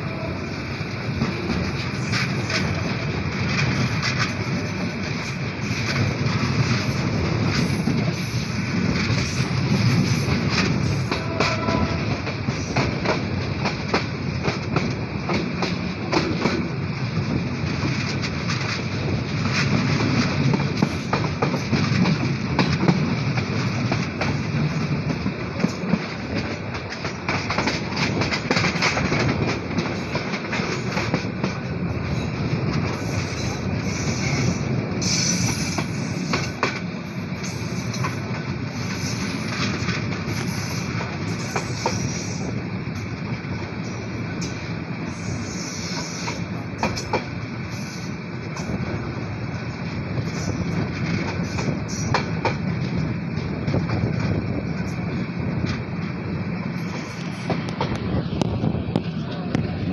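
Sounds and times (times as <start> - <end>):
train rumbling along track: 0.0 - 59.9
wheels clattering over rail joints: 1.1 - 33.8.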